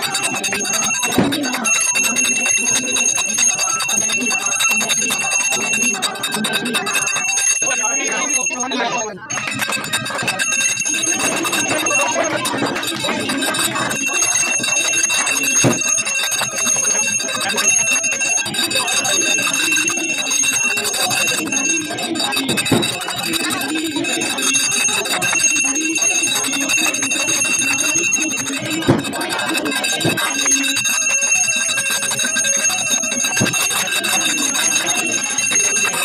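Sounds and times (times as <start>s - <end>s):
hands clapping: 0.0s - 8.4s, 9.3s - 36.0s
hand bell ringing: 0.0s - 36.0s
voices singing: 0.0s - 36.0s.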